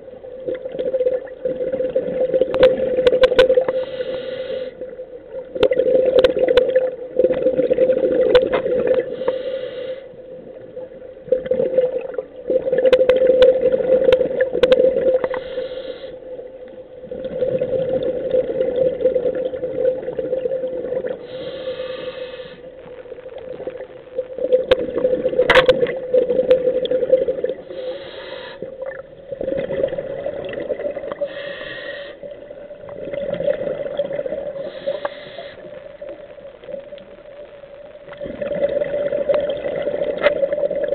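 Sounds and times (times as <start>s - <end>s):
exhaled bubbles gurgling: 0.0s - 40.9s
regulator inhale hiss: 3.6s - 5.0s, 9.0s - 10.3s, 15.2s - 16.3s, 21.2s - 22.8s, 27.6s - 28.8s, 31.1s - 32.4s, 34.6s - 35.8s
steady hum: 13.6s - 40.9s.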